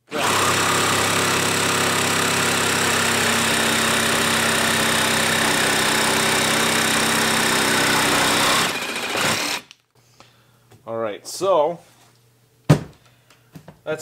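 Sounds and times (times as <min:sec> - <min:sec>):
jigsaw sawing wood: 0:00.0 - 0:09.7.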